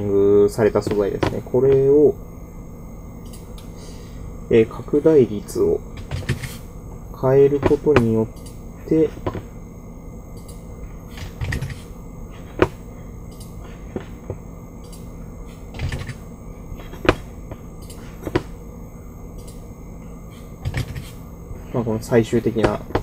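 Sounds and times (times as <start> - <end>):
low electrical hum: 0.0 - 23.0.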